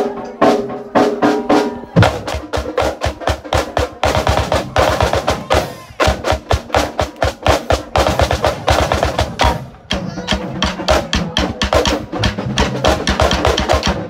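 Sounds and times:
bass drum hits: 0:02.0 - 0:02.6
rapid snare drum strokes: 0:02.0 - 0:14.0.

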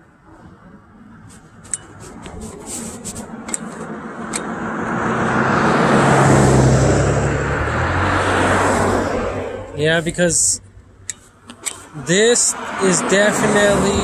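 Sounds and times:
low engine hum: 0:00.1 - 0:14.0
vehicle passing close by: 0:02.0 - 0:10.0, 0:11.8 - 0:14.0
sharp clicks: 0:03.4 - 0:04.5.

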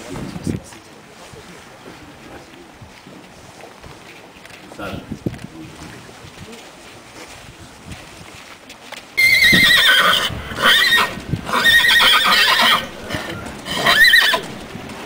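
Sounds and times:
horse whinnying: 0:09.2 - 0:14.7.

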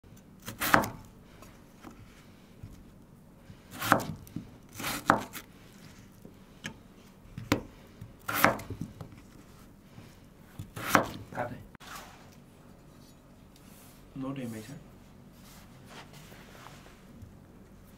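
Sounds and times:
knife chopping on cutting board: 0:00.4 - 0:01.1, 0:03.7 - 0:05.4, 0:07.4 - 0:09.1, 0:10.6 - 0:11.3.

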